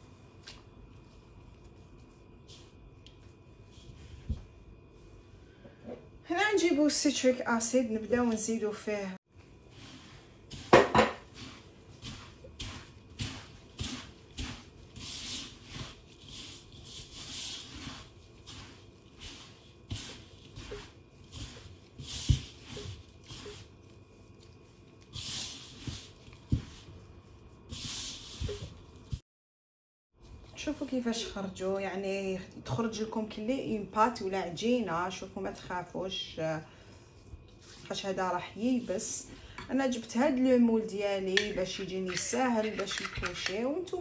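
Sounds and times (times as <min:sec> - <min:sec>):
gloved hands rubbing damp powder: 0:00.0 - 0:05.2, 0:09.4 - 0:29.1.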